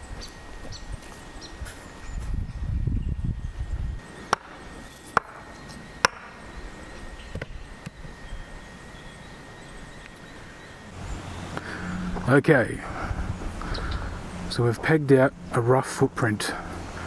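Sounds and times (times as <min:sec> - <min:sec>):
low rumbling: 0:05.5 - 0:17.0.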